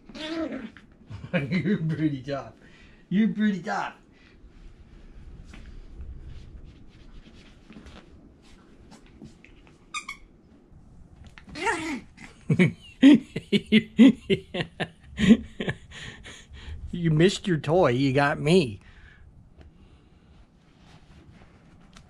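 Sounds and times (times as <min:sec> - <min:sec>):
soft rustling on a pillow: 0:04.3 - 0:09.9, 0:19.5 - 0:22.0.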